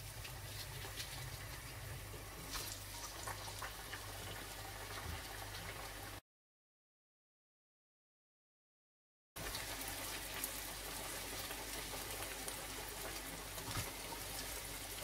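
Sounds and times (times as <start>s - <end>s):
eggs deep-frying in hot oil: 0.0s - 6.2s, 9.4s - 15.0s.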